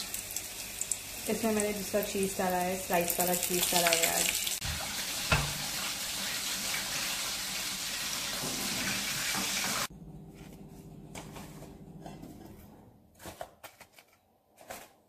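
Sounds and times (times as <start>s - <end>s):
hot oil sizzling: 0.0s - 9.9s.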